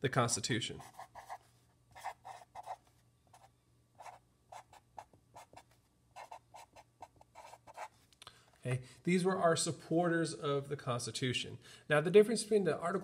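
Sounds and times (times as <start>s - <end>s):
marker writing on paper: 0.8s - 8.0s.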